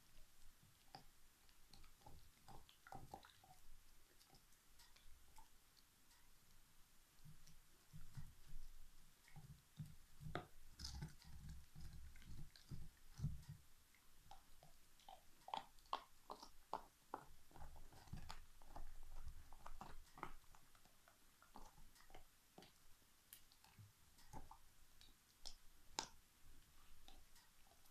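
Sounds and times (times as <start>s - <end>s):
dog teeth cracking bone: 15.0s - 24.5s.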